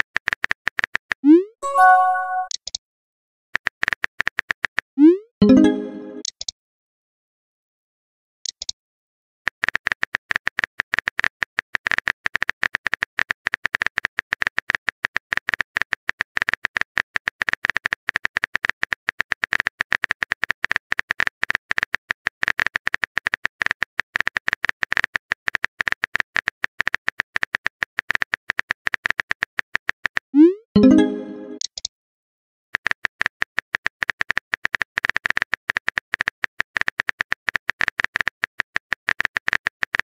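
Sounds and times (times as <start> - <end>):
keyboard typing clicks: 1.6 - 2.8, 30.8 - 31.9.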